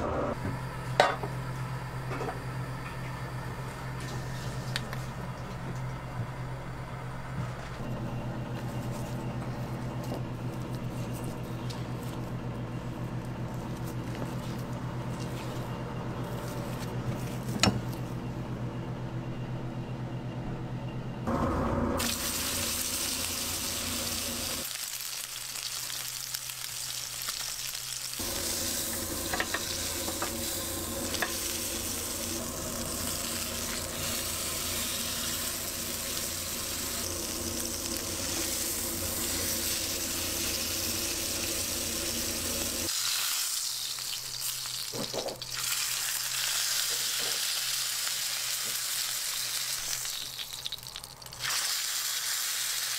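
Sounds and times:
steady low hum: 0.0s - 24.6s, 28.2s - 42.9s
steak sizzling in a pan: 22.0s - 52.9s.

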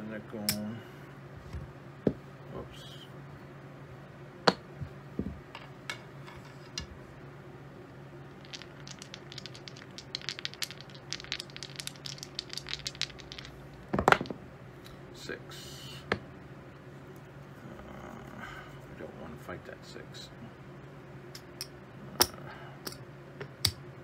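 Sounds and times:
poker chips clicking together: 8.4s - 13.9s.

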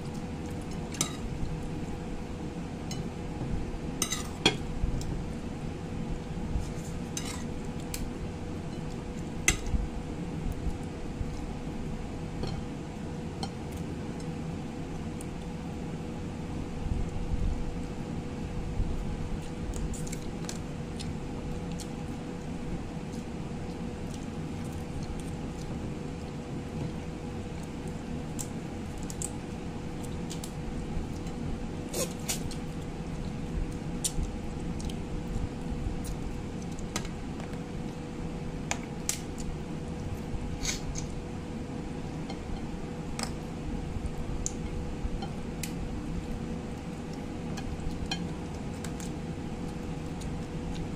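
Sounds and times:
low hum with faint tone: 0.0s - 50.9s
crab shell cracking and chewing: 27.6s - 29.4s.

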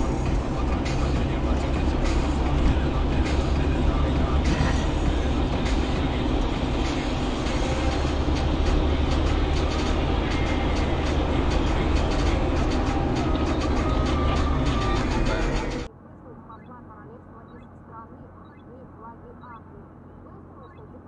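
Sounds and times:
car driving road and engine noise: 0.0s - 21.0s.

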